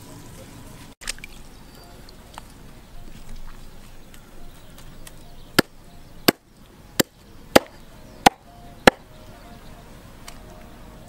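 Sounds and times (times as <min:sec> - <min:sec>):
cleaver chopping on wooden block: 0:07.0 - 0:09.0.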